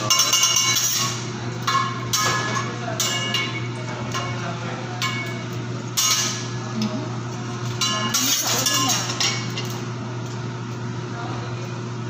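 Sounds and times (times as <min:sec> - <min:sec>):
metal spatula clinking on griddle: 0:00.0 - 0:04.4, 0:05.0 - 0:06.5, 0:07.8 - 0:09.7
steady low hum: 0:00.0 - 0:12.0.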